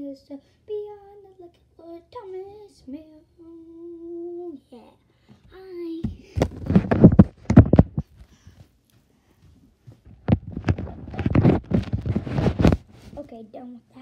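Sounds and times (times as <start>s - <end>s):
phone handling knocks and rubbing: 6.4s - 8.1s.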